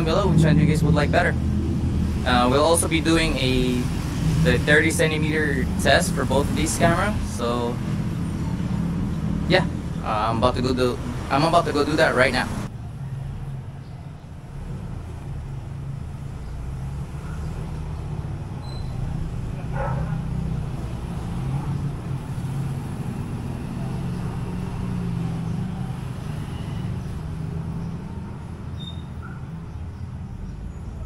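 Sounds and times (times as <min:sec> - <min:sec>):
low outdoor rumble: 0:00.0 - 0:16.8.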